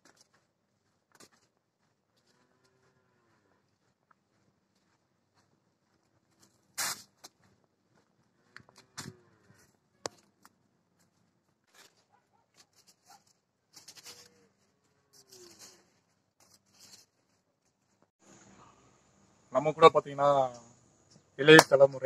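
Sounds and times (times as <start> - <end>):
leaves rustling against clothing: 11.6 - 18.4.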